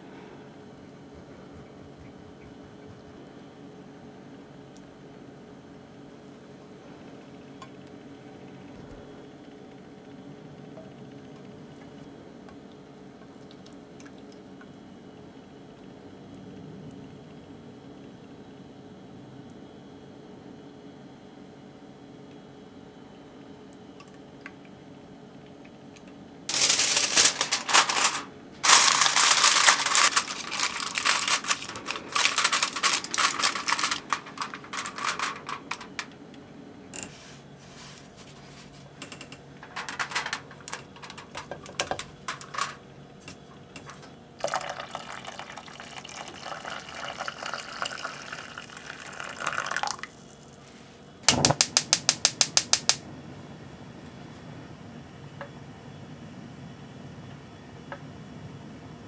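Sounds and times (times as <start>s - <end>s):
aluminium foil crinkling: 26.5s - 36.2s, 37.8s - 45.5s
water pouring into a pot: 44.4s - 50.2s.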